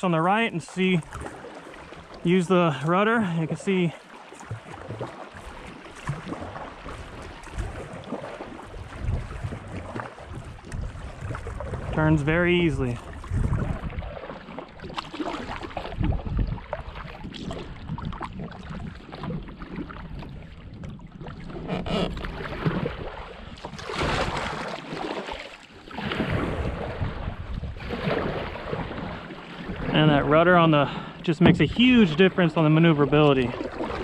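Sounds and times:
paddle splashing in water: 0.0 - 34.0
wind on microphone: 6.0 - 14.2, 14.8 - 24.6, 25.9 - 32.5.

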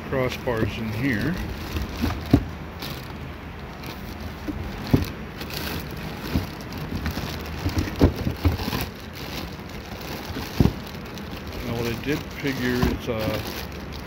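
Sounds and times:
plastic bags rustling: 0.1 - 14.0
dull knocks: 4.4 - 5.2, 6.2 - 8.8.

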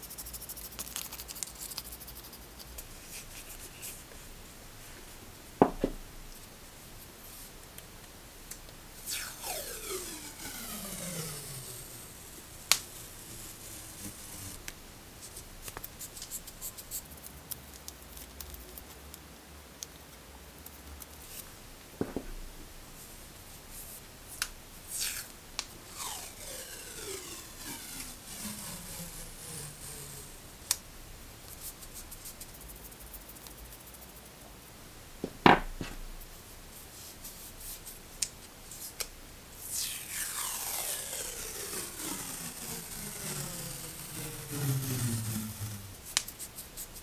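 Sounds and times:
tape peeling off roll: 9.0 - 17.0, 24.9 - 30.9, 39.6 - 47.0.

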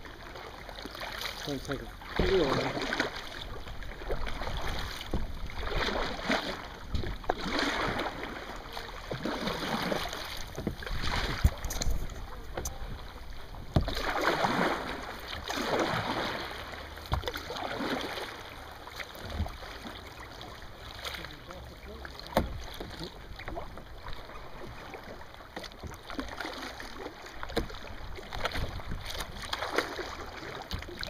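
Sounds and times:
water splashing against kayak hull: 0.0 - 31.0
sharp knocks on hull: 5.0 - 5.4, 10.5 - 12.8, 13.7 - 14.4, 17.1 - 17.5, 22.2 - 23.0.

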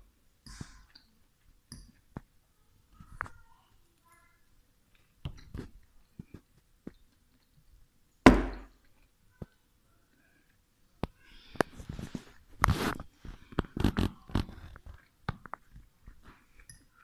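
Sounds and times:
loud knock: 8.3 - 8.7.

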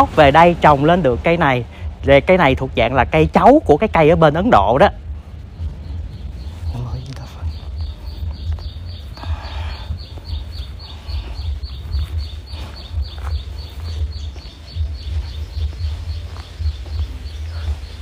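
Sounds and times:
wind buffeting microphone: 0.0 - 18.0
rapid high chirps: 4.9 - 18.0.

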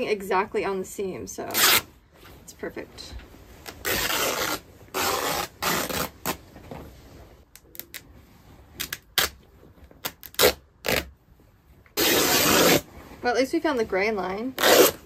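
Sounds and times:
fabric tearing: 1.5 - 1.9, 3.6 - 6.4, 8.8 - 9.4, 10.0 - 11.1, 12.0 - 12.9, 14.6 - 15.0.

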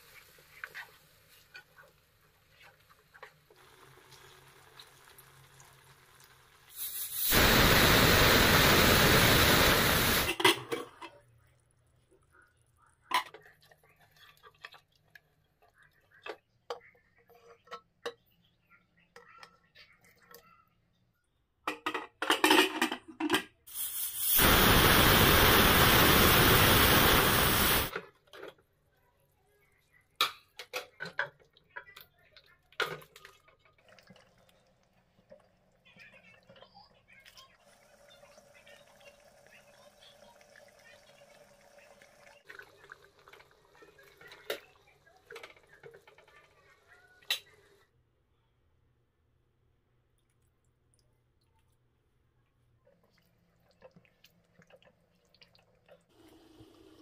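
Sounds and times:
pressure cooker steam hiss: 6.6 - 10.5, 23.7 - 27.9.

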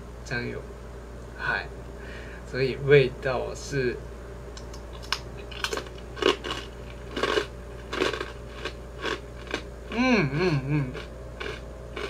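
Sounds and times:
crunching rice cracker: 4.9 - 10.1, 10.8 - 12.0
person humming: 9.9 - 11.1.

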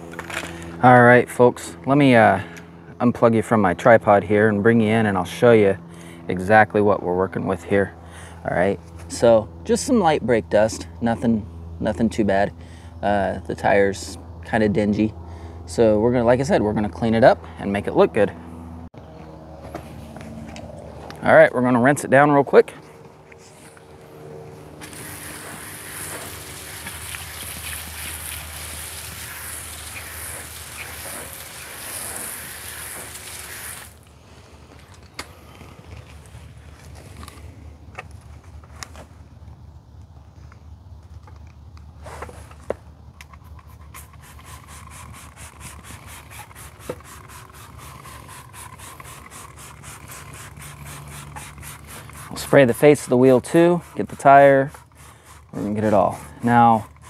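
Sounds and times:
hose water spraying on wheel: 24.7 - 34.1, 43.7 - 57.0.

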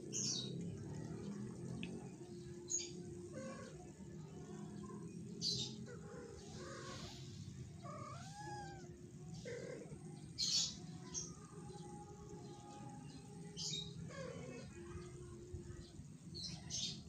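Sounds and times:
cat hissing: 6.6 - 9.8
cat meowing: 7.8 - 8.9.

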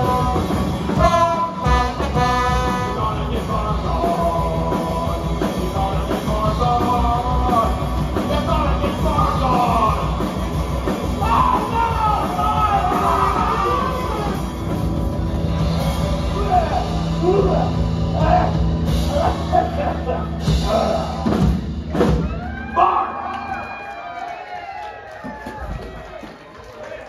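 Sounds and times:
punk rock band playing: 0.0 - 22.8
singer yelling: 11.1 - 14.6, 16.3 - 21.5, 22.3 - 23.8.

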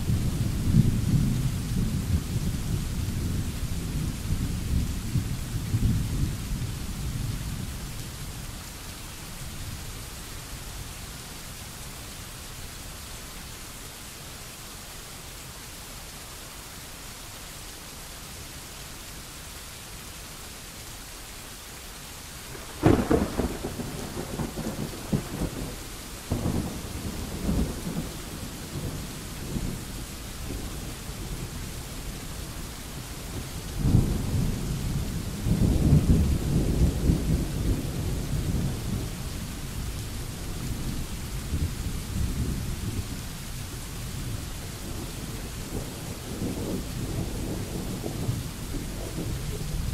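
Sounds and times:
steady rain hiss: 0.0 - 49.9
thunder rumbling: 22.5 - 31.5, 33.3 - 39.5, 44.2 - 49.9.

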